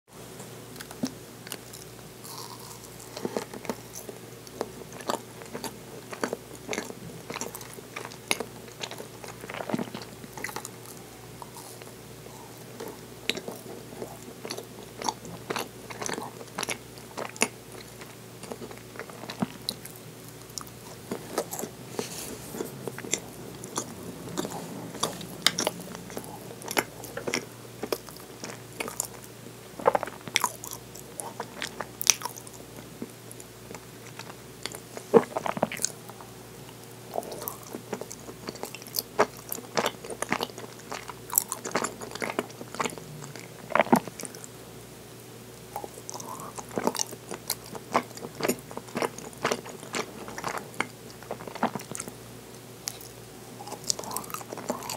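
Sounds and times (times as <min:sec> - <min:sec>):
faint steady hum: 0:00.1 - 0:54.9
pastry crunching while chewing: 0:00.8 - 0:44.5, 0:45.6 - 0:52.2, 0:52.8 - 0:54.9
wet mouth sounds: 0:09.0 - 0:29.2.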